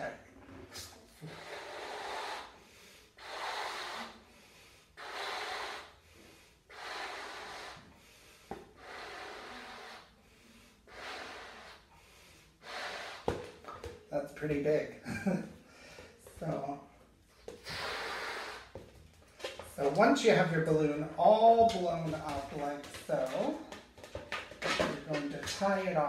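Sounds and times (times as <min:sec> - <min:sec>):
person blowing up balloon: 0:00.7 - 0:13.9, 0:17.5 - 0:18.9.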